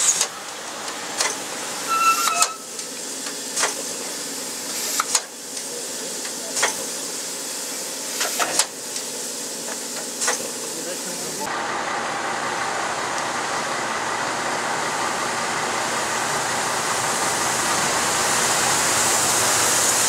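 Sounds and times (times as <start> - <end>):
steam locomotive hissing: 0.0 - 20.0
brief high tone: 1.9 - 2.7.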